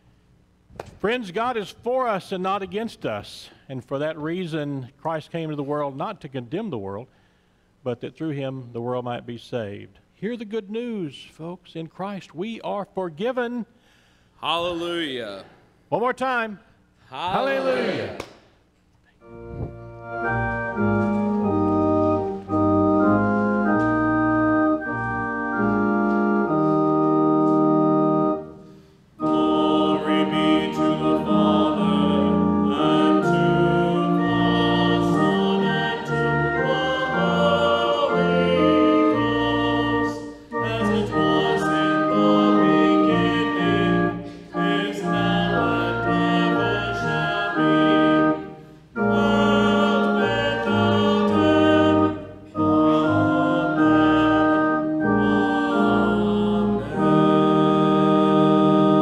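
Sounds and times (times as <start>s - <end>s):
church organ playing chords: 19.2s - 59.0s
voices singing a hymn: 29.2s - 59.0s.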